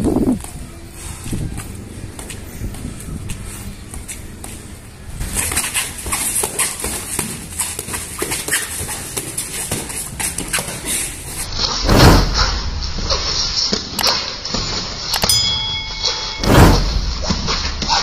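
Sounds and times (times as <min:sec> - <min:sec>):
feet shuffling on concrete: 0:00.3 - 0:11.5
boxing gloves slapping: 0:05.3 - 0:10.8.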